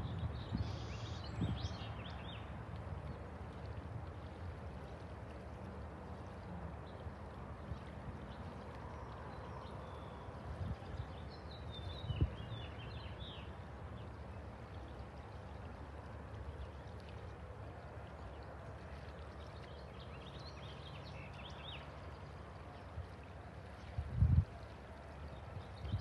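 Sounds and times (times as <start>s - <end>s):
wind buffeting microphone: 0.0s - 4.2s, 10.3s - 13.0s, 23.8s - 24.6s, 25.4s - 26.0s
songbird chirping: 18.0s - 23.4s.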